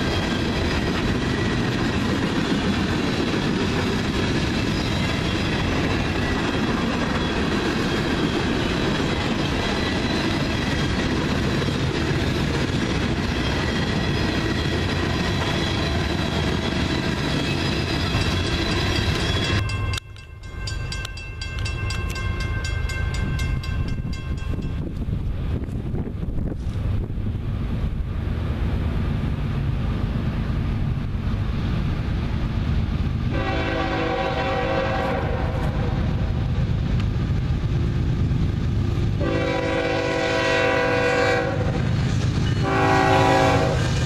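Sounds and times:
wind buffeting microphone: 21.5 - 33.4
train horn chord: 33.3 - 36.0, 39.2 - 41.8, 42.6 - 43.9.

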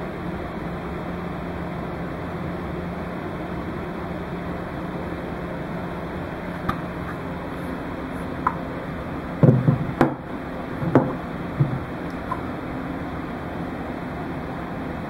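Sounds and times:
steady background hum: 0.0 - 15.0
knocks and bumps on a dome: 9.4 - 10.2, 10.8 - 11.9.

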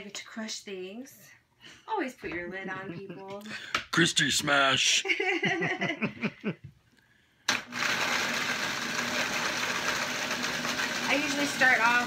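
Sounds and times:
blender grinding crackers: 7.5 - 12.0.

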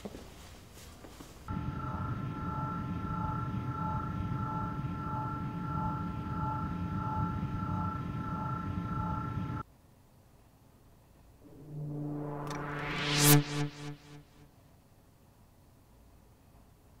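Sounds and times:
electronic hovering craft hum: 1.5 - 9.6, 11.5 - 14.4
low rumble: 1.5 - 9.6, 11.5 - 14.2.

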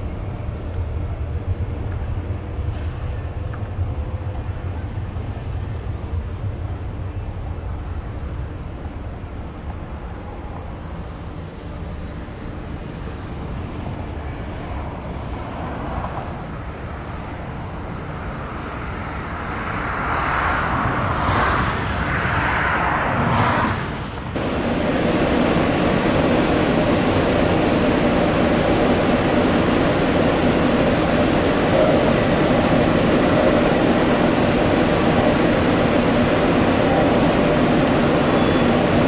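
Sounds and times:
deep steady engine noise: 0.0 - 39.0
jet airliner passing: 13.2 - 39.0.

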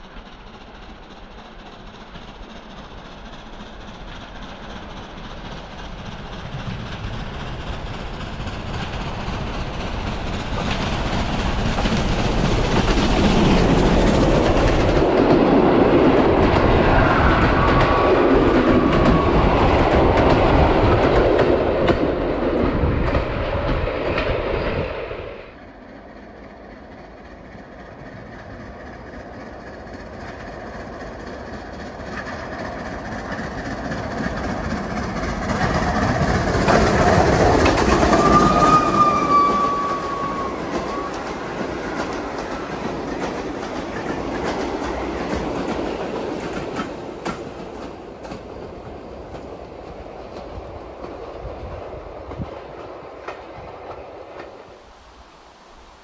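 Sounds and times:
steam train passing: 0.0 - 56.0
wheels clattering over rail joints: 27.2 - 49.6.

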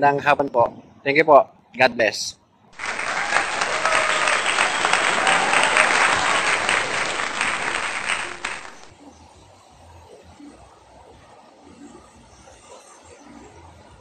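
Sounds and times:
applause: 2.8 - 8.9.

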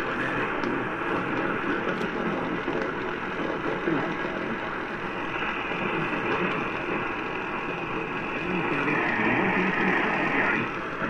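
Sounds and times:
radio static hiss: 0.0 - 11.0
faint radio voice: 5.2 - 10.8.

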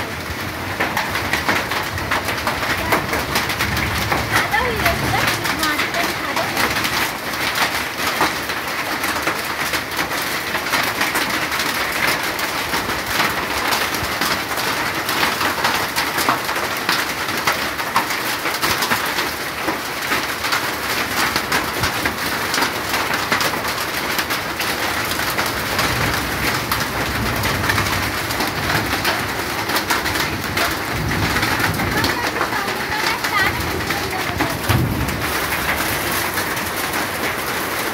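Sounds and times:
hailstones tapping: 0.0 - 37.9
heavy rain hissing: 22.8 - 37.9.

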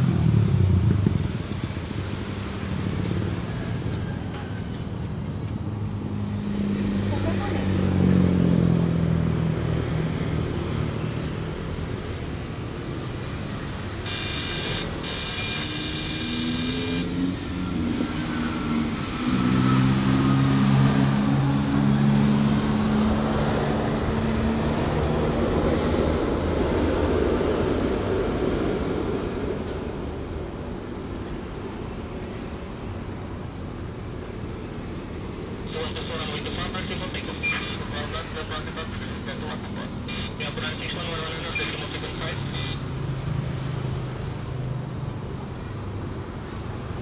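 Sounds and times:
passing vehicle engines: 0.0 - 47.0
steady high horn tone: 14.0 - 17.2.

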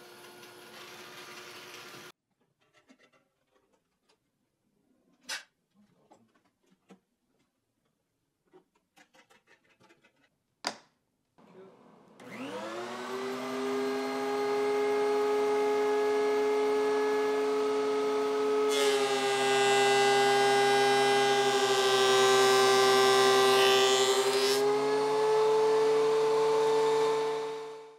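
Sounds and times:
thickness planer motor humming: 12.2 - 27.9.

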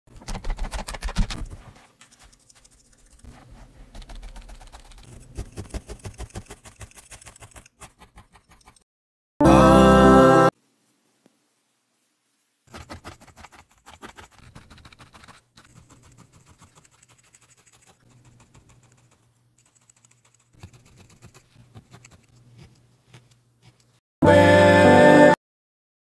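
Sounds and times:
felting needle poking wool: 0.2 - 8.8, 12.3 - 24.0.

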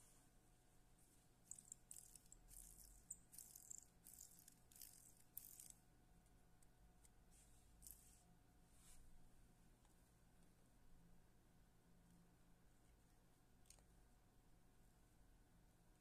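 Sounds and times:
faint steady hum: 0.0 - 16.0
rustling and scratching strokes: 7.2 - 9.2.

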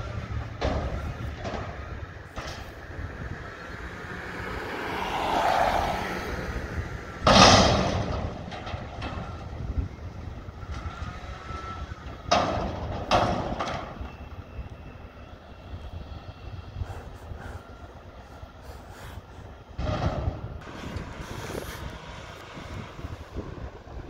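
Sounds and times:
dumpster crashing and banging: 7.2 - 9.7, 12.2 - 14.2, 19.8 - 20.6.

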